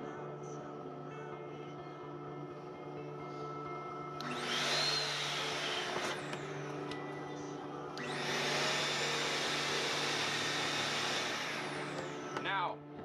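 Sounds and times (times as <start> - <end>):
shop vacuum motor running: 4.2 - 12.7.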